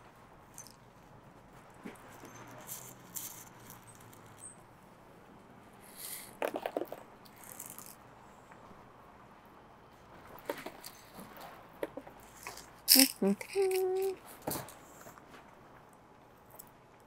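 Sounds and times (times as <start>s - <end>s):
pebbles rattling in plastic scoop: 6.0s - 8.0s.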